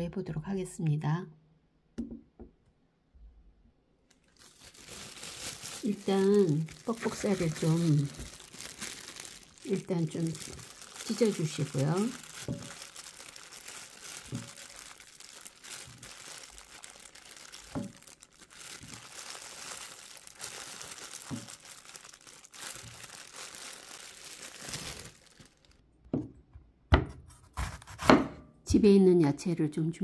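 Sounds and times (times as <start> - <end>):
knocks on wooden cutting board: 2.0 - 2.5.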